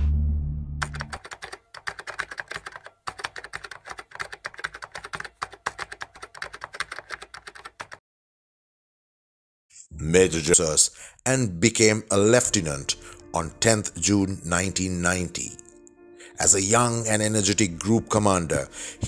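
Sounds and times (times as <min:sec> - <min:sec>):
keyboard key clicks: 0:00.8 - 0:08.0.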